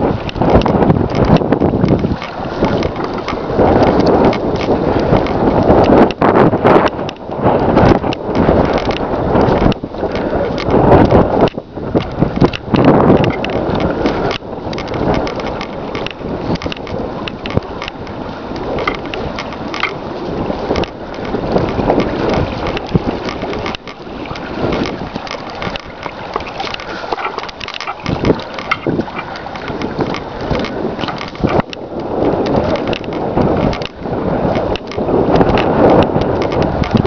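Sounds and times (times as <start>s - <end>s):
wind buffeting microphone: 0.0s - 37.0s
small crackles and knocks: 0.2s - 20.0s, 20.6s - 37.0s.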